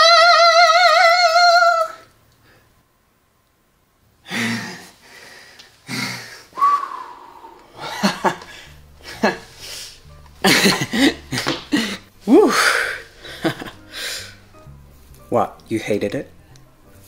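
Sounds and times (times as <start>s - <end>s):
heavy breathy exhalations: 4.2s - 10.1s, 10.9s - 14.5s.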